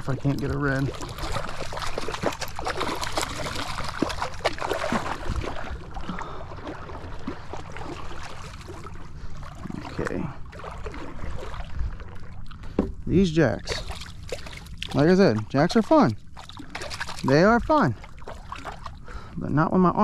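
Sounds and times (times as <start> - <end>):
water lapping against hull: 0.0 - 20.0.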